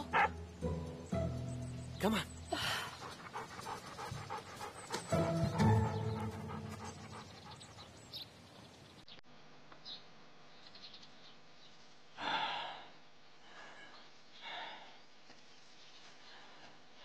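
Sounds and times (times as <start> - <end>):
dog panting: 2.5 - 8.3.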